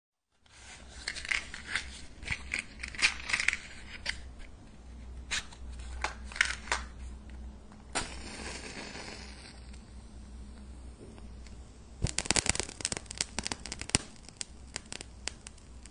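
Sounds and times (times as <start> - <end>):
matchbox clicks and rattles: 1.0 - 4.3, 5.3 - 6.9
match striking and flaring: 7.9 - 15.9.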